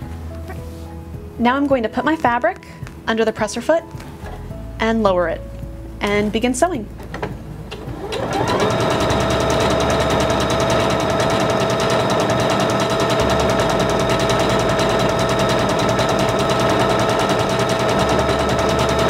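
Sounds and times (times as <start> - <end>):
sewing machine motor whine: 7.9 - 19.0.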